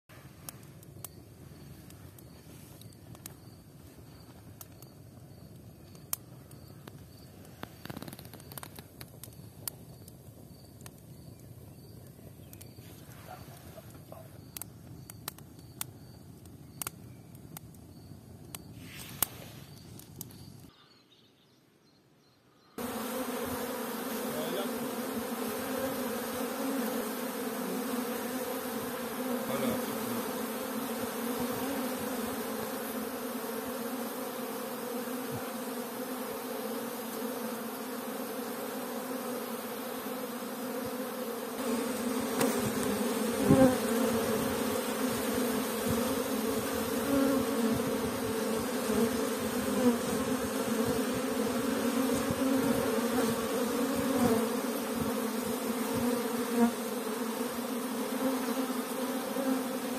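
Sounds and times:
wood fire crackling and popping: 0:04.6 - 0:12.7, 0:14.5 - 0:20.7
bees buzzing: 0:22.8 - 0:59.9.

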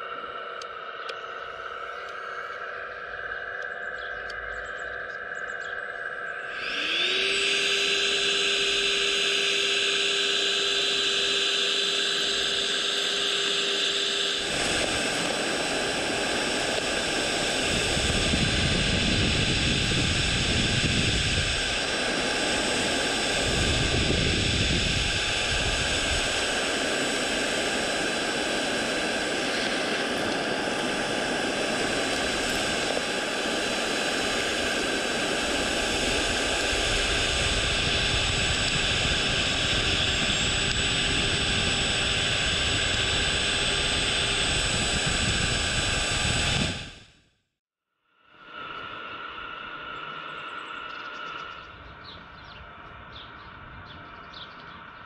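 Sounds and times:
vacuum fan whine: 0:00.0 - 0:47.2, 0:48.2 - 0:55.0
rough rushing with low rumbles: 0:14.4 - 0:47.0.

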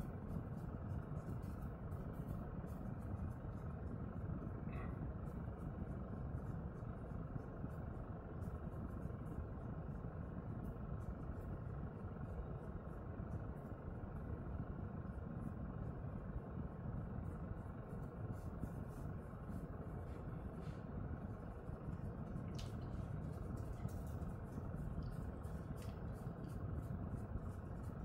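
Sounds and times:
low background rumble: 0:00.0 - 0:28.0
fingers rubbing dog fur: 0:17.9 - 0:28.0.

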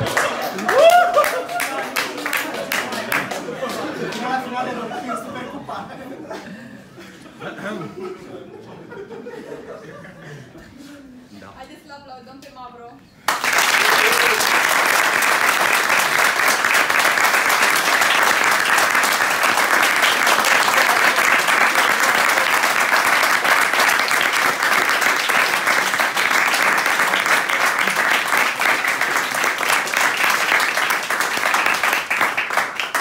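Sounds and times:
audience clapping: 0:00.0 - 0:04.6, 0:13.2 - 0:33.0.

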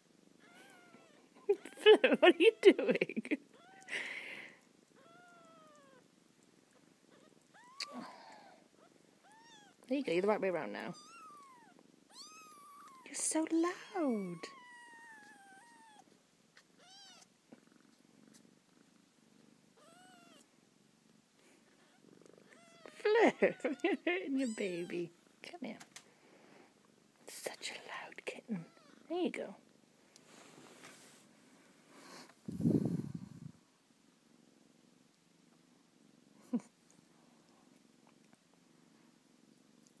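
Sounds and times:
soft purring: 0:00.0 - 0:40.0
kitten mewing: 0:04.9 - 0:06.0, 0:07.1 - 0:08.6, 0:10.9 - 0:13.1, 0:13.8 - 0:16.0, 0:16.8 - 0:17.3.

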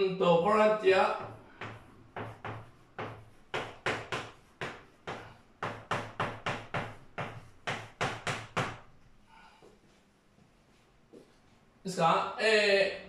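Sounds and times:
chalk tapping and scraping on blackboard: 0:01.1 - 0:09.1.

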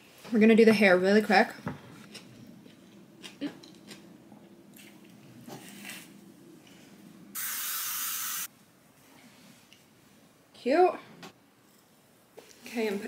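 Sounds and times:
aerosol hairspray hiss: 0:07.4 - 0:08.5.

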